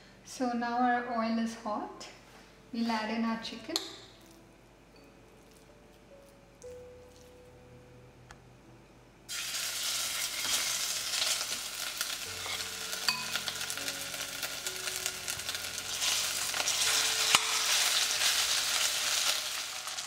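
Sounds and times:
chicken sizzling in hot oil: 9.3 - 20.0.

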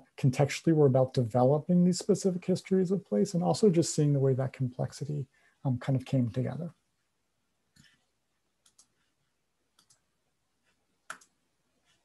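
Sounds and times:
small sharp clicks: 8.6 - 9.0, 9.7 - 10.0, 11.1 - 11.4.

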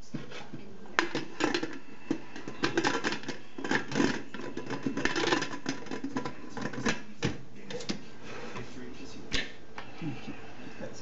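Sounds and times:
cookware clicking and clattering: 0.1 - 8.0.

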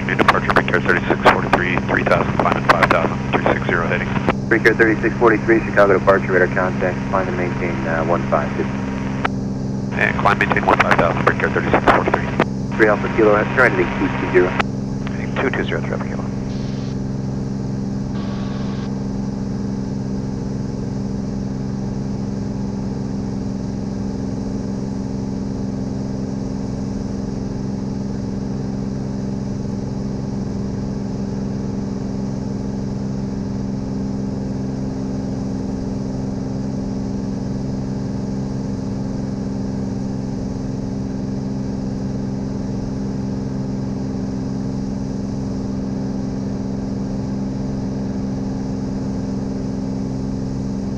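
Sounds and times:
airplane engine droning: 0.0 - 24.0.

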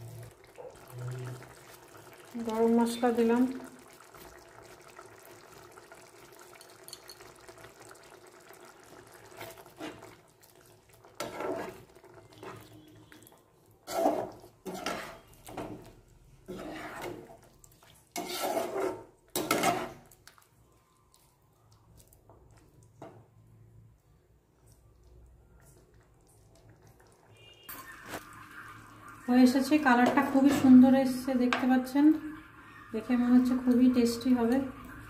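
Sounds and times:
spatula scraping in pan: 9.3 - 10.2, 11.1 - 20.1.

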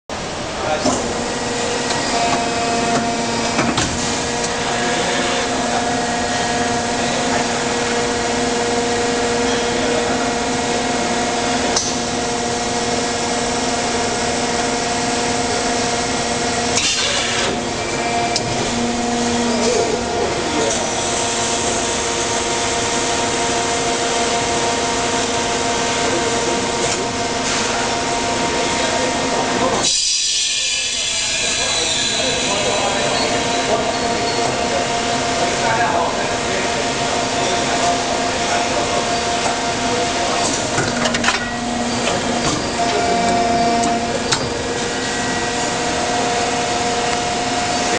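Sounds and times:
industrial machinery humming: 0.1 - 47.9
sharp mechanical knocks and clanks: 1.9 - 4.6, 16.6 - 18.9, 40.3 - 44.9.

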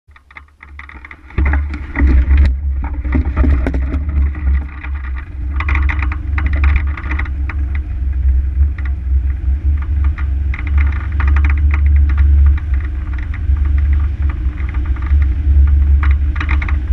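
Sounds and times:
clicks and rattles: 0.1 - 16.9
wind buffeting microphone: 0.8 - 16.9.

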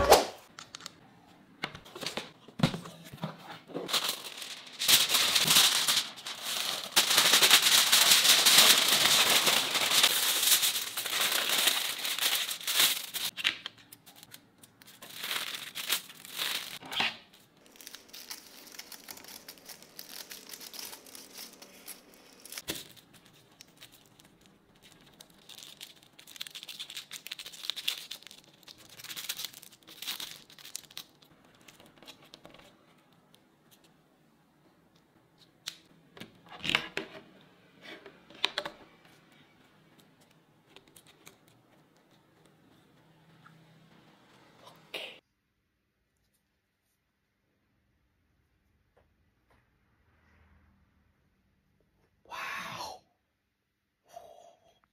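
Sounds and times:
aluminium foil crinkling: 3.8 - 33.1.

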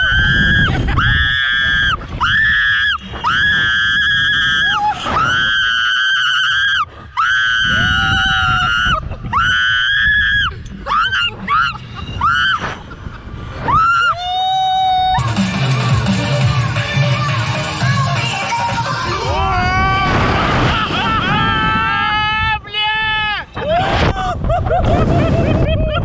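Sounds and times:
wind rumbling on microphone: 0.0 - 15.2, 18.7 - 26.0
woman screaming: 13.7 - 15.2.

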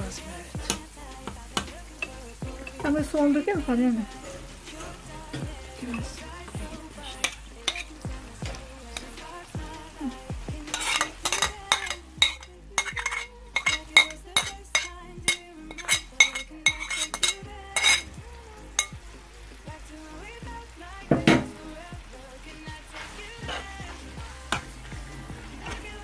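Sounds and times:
meat sizzling in a frying pan: 0.0 - 26.0
spoon scraping a plate: 7.2 - 8.0, 10.7 - 18.0
spoon tapping plate and pan: 7.2 - 8.0, 10.7 - 18.1, 18.8 - 19.0, 21.2 - 21.5.

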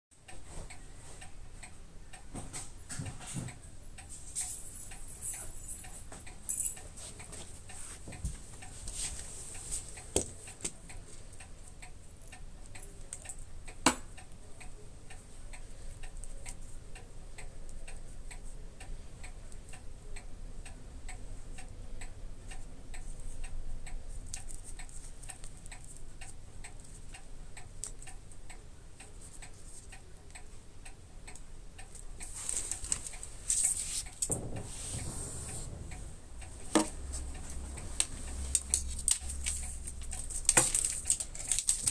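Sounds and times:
rapid mechanical ticking: 9.5 - 41.9
rustling: 32.2 - 41.9
sharp knock: 34.3 - 37.1.

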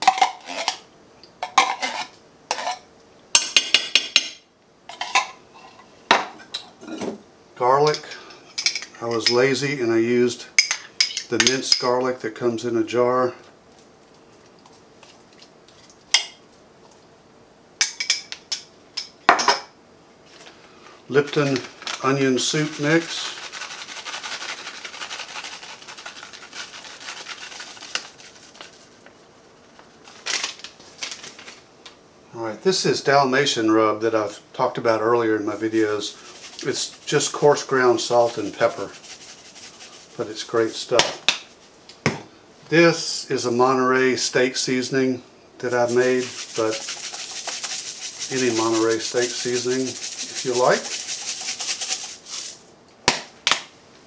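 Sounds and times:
metal spoon scraping tin can: 0.1 - 0.8, 1.4 - 2.8, 45.7 - 52.6
soup mix pattering and rustling: 13.4 - 17.2, 20.2 - 32.0, 35.5 - 42.0, 45.6 - 52.7.

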